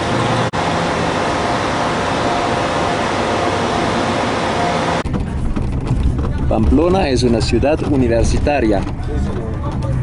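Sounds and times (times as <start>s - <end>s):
outdoor rushing noise: 0.0s - 10.0s.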